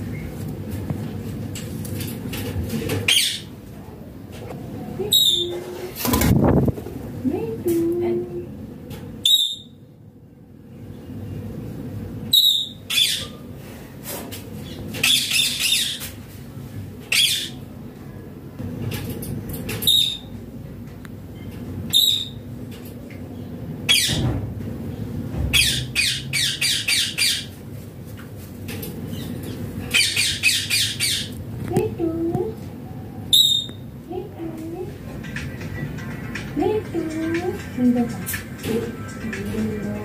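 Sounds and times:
parakeet squawking: 3.1s - 3.5s, 12.3s - 13.4s, 15.0s - 16.0s, 17.1s - 17.6s, 21.9s - 22.4s, 25.5s - 27.5s, 29.1s - 31.4s, 33.3s - 33.8s.

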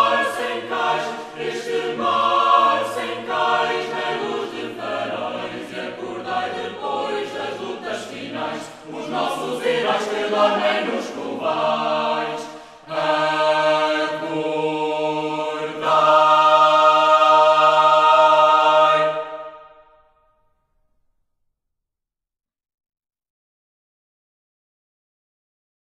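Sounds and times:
choir singing: 0.0s - 20.1s.

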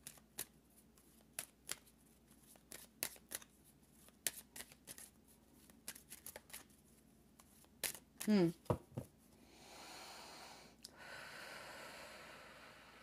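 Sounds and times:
cards being shuffled: 0.0s - 9.1s.

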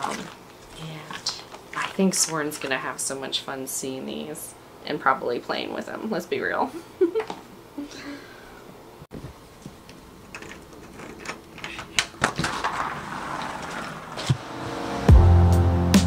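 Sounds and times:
background music: 14.4s - 16.0s.

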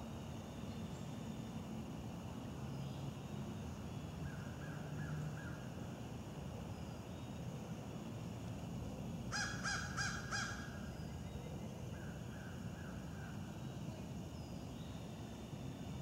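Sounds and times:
low background noise: 0.0s - 16.0s
crow cawing: 9.3s - 10.8s.

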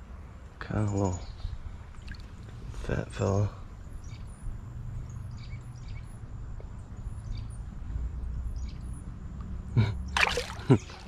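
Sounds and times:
creek water sloshing: 1.8s - 2.8s, 10.2s - 11.0s
fish splashing: 10.2s - 11.0s.

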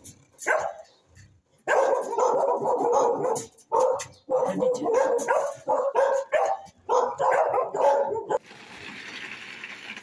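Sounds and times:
dog barking rapidly: 0.4s - 0.9s, 1.6s - 8.4s.

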